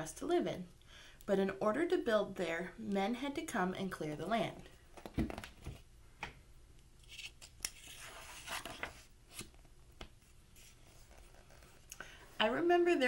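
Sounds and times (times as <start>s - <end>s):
book pages rustling: 7.0s - 11.9s.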